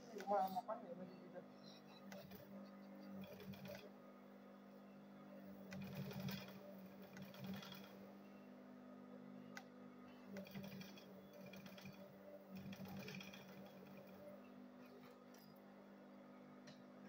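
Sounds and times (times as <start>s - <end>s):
motor hum: 0.0s - 17.0s
sewing machine stitching: 1.8s - 4.0s, 5.4s - 8.2s, 10.2s - 15.6s.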